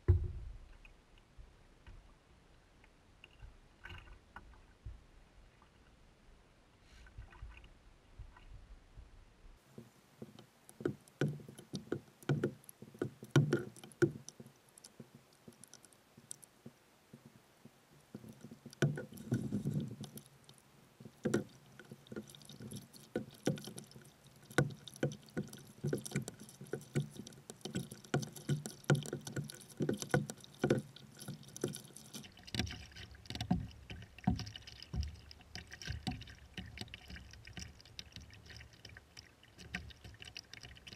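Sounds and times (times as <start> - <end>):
paddle knocks and splashes: 0.0 - 0.7, 22.7 - 38.6
water sloshing against hull: 0.0 - 40.9.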